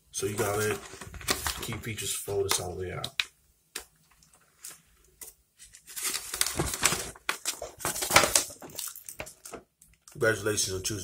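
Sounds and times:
paper rustling and crinkling: 0.3 - 2.0, 4.0 - 9.6.

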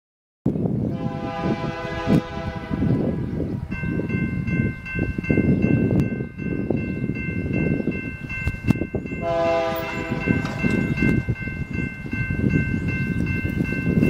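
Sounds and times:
train horn blowing: 0.9 - 3.3, 9.2 - 10.6
crossing signal bell ringing: 3.7 - 14.0.

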